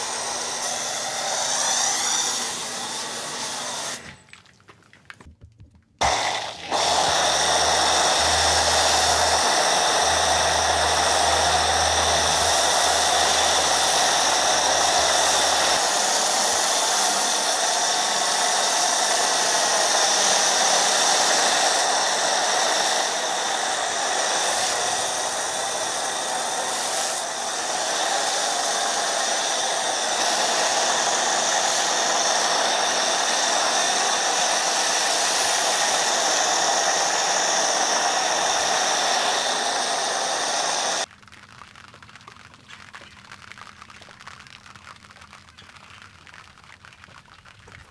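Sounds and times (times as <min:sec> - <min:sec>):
pressure washer spraying: 0:00.0 - 0:04.2, 0:06.0 - 0:41.1.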